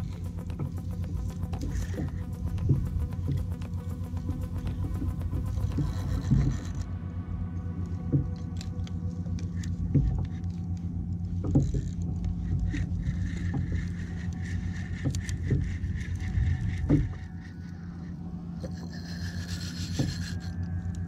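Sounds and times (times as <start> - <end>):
fishing reel clicking: 0.0 - 6.9, 12.6 - 21.0
water around hull: 0.0 - 21.0.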